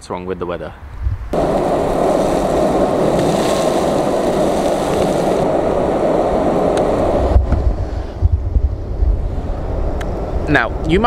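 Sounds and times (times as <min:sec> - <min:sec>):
skateboard wheels rolling on asphalt: 0:01.3 - 0:10.2.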